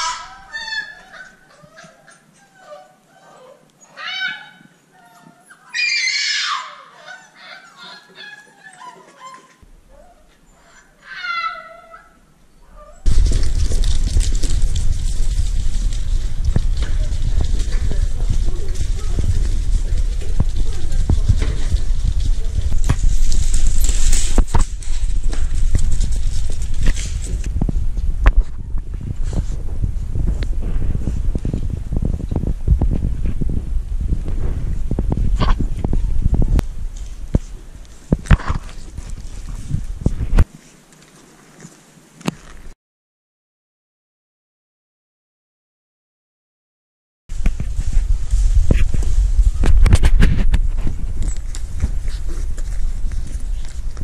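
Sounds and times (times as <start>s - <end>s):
puppies whining and squealing: 0.0s - 13.1s
rustling close to microphone: 12.7s - 42.8s, 47.3s - 54.0s
low rumble: 13.0s - 40.4s.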